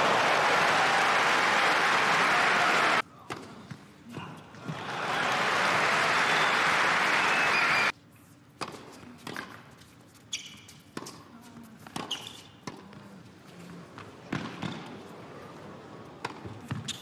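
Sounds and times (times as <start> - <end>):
crowd applauding: 0.0 - 3.0, 4.7 - 7.9
shoe squeaks: 10.2 - 10.9, 12.0 - 12.6, 16.8 - 17.0
tennis ball bouncing: 16.2 - 17.0.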